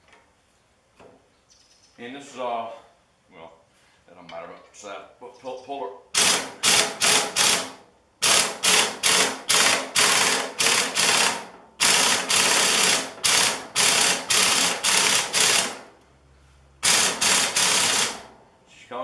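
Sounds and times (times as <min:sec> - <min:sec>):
impact wrench hammering: 0:06.2 - 0:15.9, 0:16.8 - 0:18.3.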